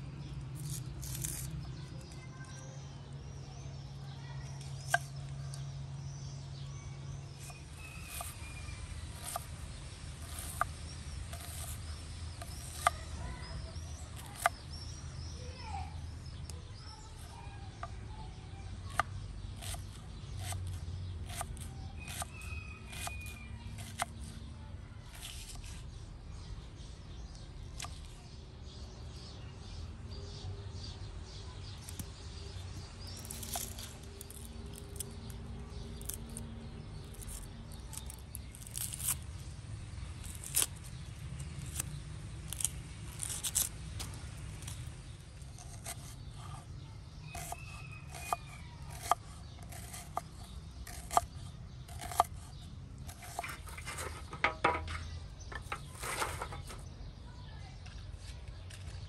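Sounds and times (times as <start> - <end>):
knife cutting onion on board: 7.4 - 9.5, 10.1 - 14.7, 18.9 - 24.1, 45.5 - 46.6, 47.3 - 54.9
dry sticks clacking: 33.1 - 36.4, 40.2 - 46.1, 47.3 - 56.9.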